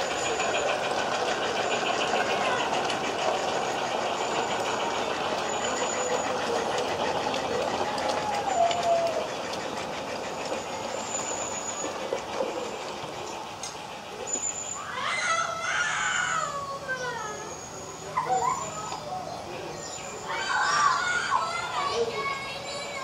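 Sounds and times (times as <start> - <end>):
toy train ticking along track: 0.0 - 15.0, 20.1 - 23.0
little girl crying and wailing: 14.8 - 17.4.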